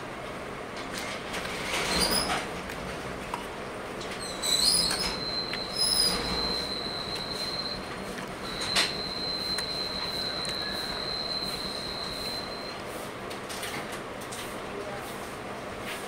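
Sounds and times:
high steady squeal: 0:04.2 - 0:12.8.

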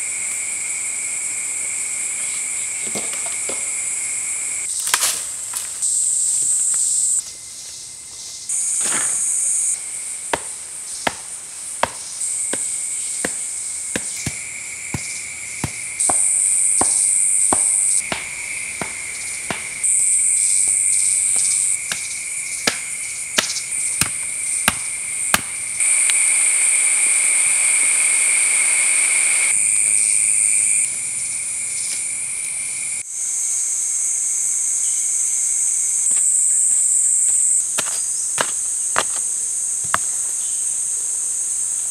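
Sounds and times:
wooden stakes being pounded: 0:08.6 - 0:09.5, 0:10.2 - 0:26.0, 0:37.3 - 0:40.2
loud shrill insect drone: 0:12.1 - 0:37.1.

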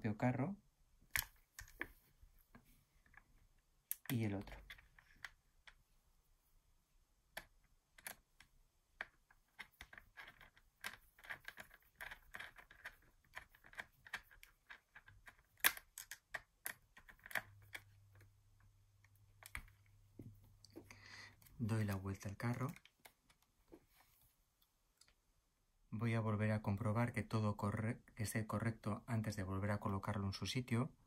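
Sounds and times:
screwdriver and small parts clicking: 0:07.4 - 0:18.3.

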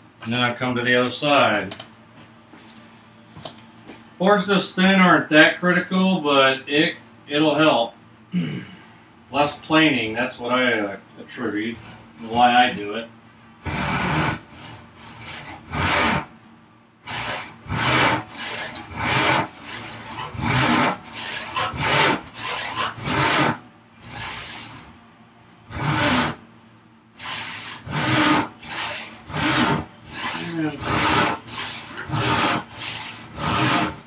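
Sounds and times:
handsaw cutting wood: 0:13.6 - 0:16.3, 0:17.0 - 0:24.9, 0:25.7 - 0:26.4, 0:27.2 - 0:34.0.

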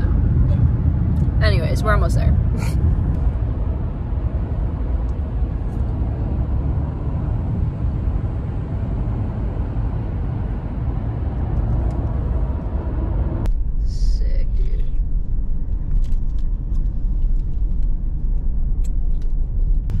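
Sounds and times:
car road and engine noise: 0:00.0 - 0:20.0.

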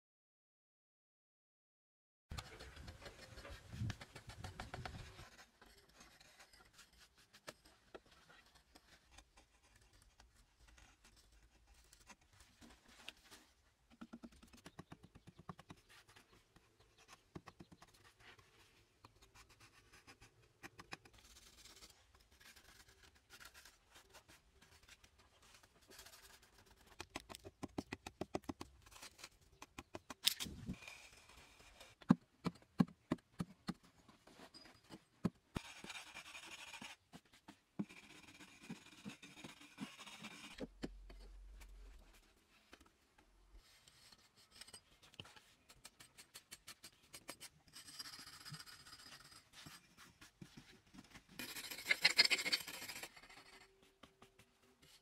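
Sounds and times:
hand tools scraping plaster: 0:44.0 - 0:54.4.

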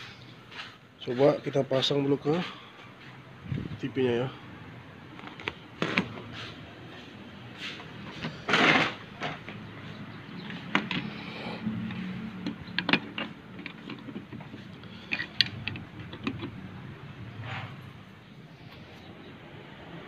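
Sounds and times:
circuit board scraping on metal: 0:07.6 - 0:09.4.

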